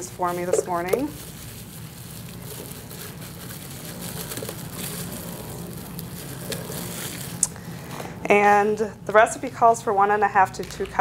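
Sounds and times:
frozen bananas crackling: 0.0s - 7.9s
steady low hum: 0.0s - 11.0s.

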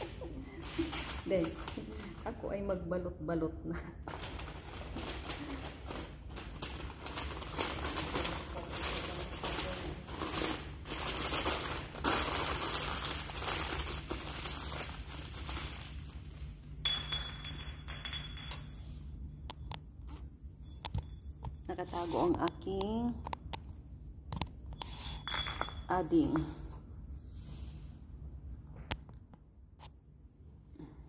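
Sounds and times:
wrapping material crinkling: 0.0s - 2.4s, 4.0s - 16.8s.

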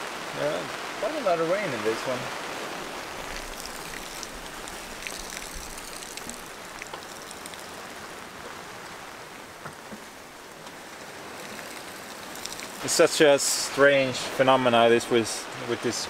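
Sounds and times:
heavy rain hissing: 0.0s - 16.0s
water rushing along hull: 0.0s - 16.0s
raindrop ticks: 3.1s - 9.0s, 9.6s - 13.3s.

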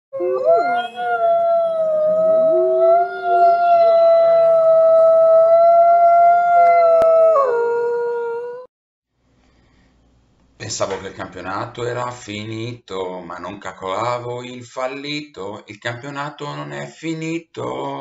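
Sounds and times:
wolves howling: 0.2s - 8.7s.

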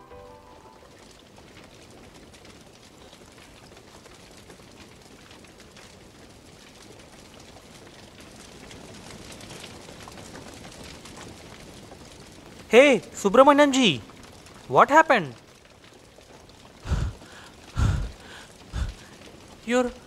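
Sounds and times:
falling rain hiss: 0.0s - 20.0s.

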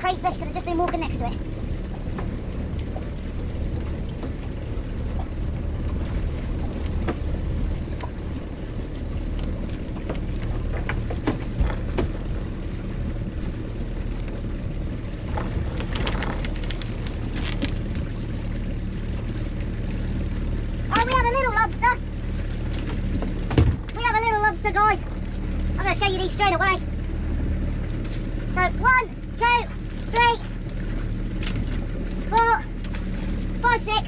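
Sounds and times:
outboard motor idling: 0.0s - 34.0s
water splashing: 0.0s - 34.0s.

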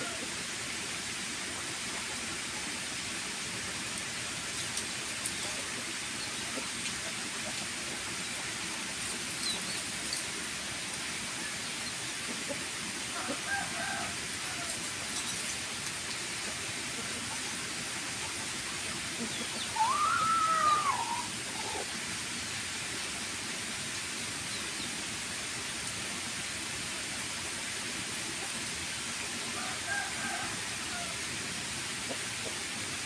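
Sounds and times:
steady hiss: 0.0s - 33.0s
chickens clucking: 12.1s - 15.5s, 16.4s - 21.9s.

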